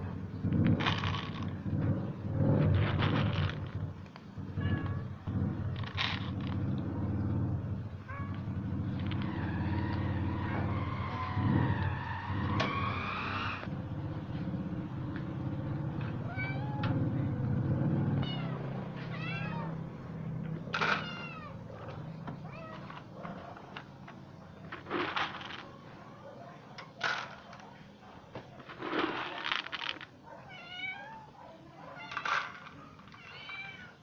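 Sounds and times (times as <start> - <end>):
cats meowing: 16.0 - 17.1, 18.1 - 20.0, 20.6 - 23.2, 30.3 - 34.0.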